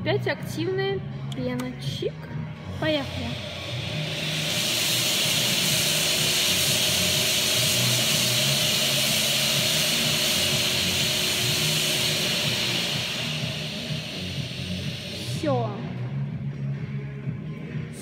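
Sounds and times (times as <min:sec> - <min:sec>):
pressurised spray hissing: 0:02.8 - 0:16.3.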